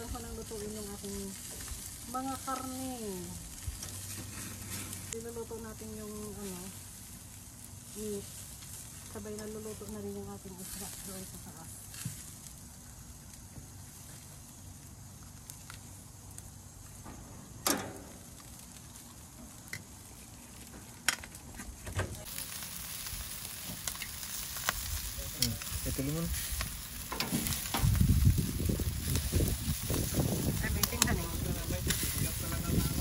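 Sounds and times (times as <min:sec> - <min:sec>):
fish sizzling on a grill: 0:00.0 - 0:33.0
low rumble: 0:22.2 - 0:33.0
metal tongs clicking on grill: 0:31.8 - 0:32.2.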